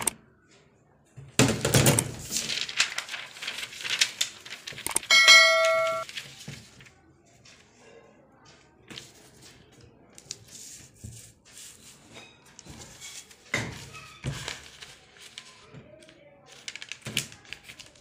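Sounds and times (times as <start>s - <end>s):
notification bell chime: 5.1s - 6.0s.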